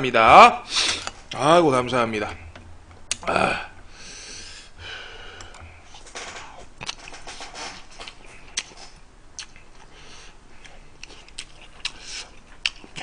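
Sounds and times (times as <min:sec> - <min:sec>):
man slurping and chewing: 0:06.8 - 0:13.0.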